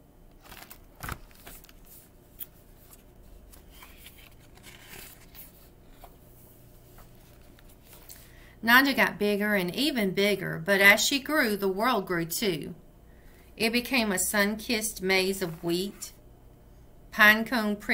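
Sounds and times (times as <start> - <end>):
book pages rustling: 0.3 - 8.3.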